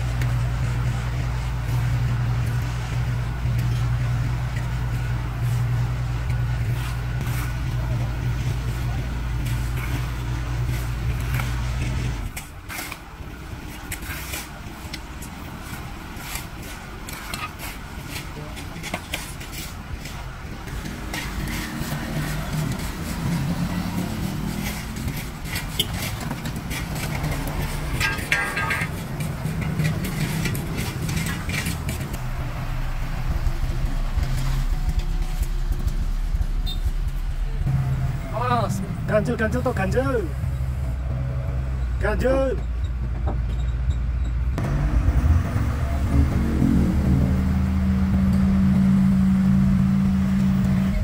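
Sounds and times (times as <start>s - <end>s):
engine hum: 0.0s - 51.0s
shovels scraping asphalt: 5.4s - 32.2s.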